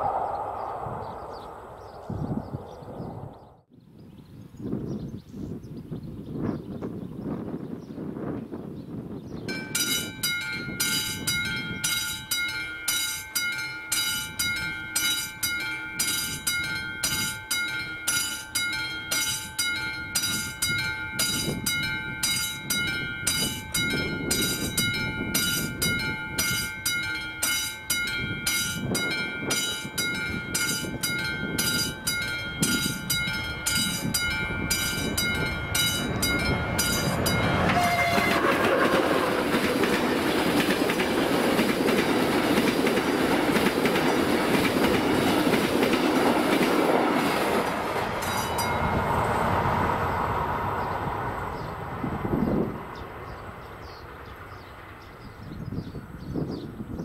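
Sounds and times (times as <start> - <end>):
level crossing bell ringing: 9.5 - 38.1, 48.2 - 49.1
train rumble: 9.5 - 56.9.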